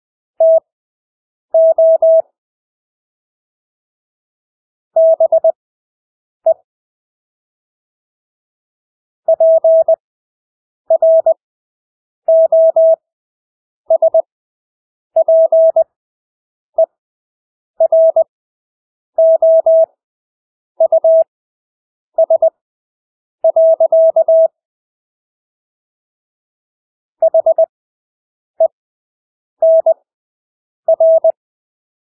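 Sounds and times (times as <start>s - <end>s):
morse code beeps: 0.4s - 0.6s, 1.6s - 2.2s, 5.0s - 5.6s, 9.3s - 10.0s, 10.9s - 11.4s, 12.3s - 13.0s, 13.9s - 14.3s, 15.2s - 15.8s, 17.8s - 18.3s, 19.2s - 19.9s, 20.8s - 21.3s, 22.2s - 22.5s, 23.5s - 24.6s, 27.2s - 27.7s, 29.6s - 30.0s, 30.9s - 31.4s.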